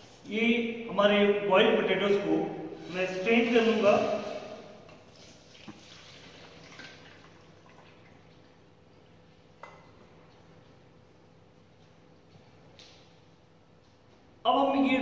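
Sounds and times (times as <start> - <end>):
water pouring and dripping: 3.7 - 8.7.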